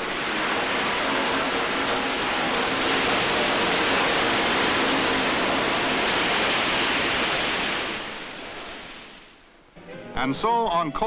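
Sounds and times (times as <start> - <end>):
coal pouring from railroad cars: 0.0 - 9.4.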